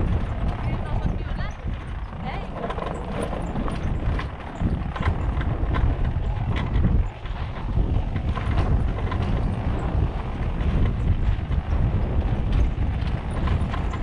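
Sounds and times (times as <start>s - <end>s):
knocks and rattles from bumps: 0.0s - 14.0s
motorcycle engine running: 0.0s - 14.0s
wind on microphone: 0.0s - 14.0s.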